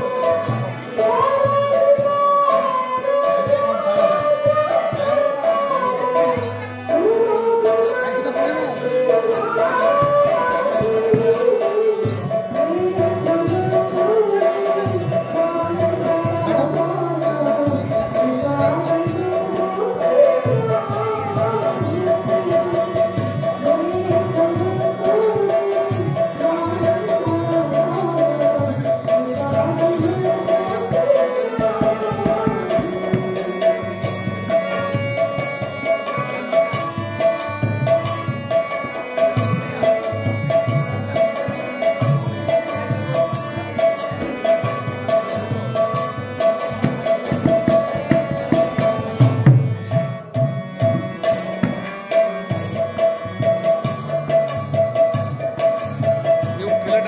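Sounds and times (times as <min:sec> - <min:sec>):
woman singing into microphone: 0:00.0 - 0:35.0
hand-played barrel drum: 0:00.0 - 0:57.0
harmonium chords: 0:00.0 - 0:57.0.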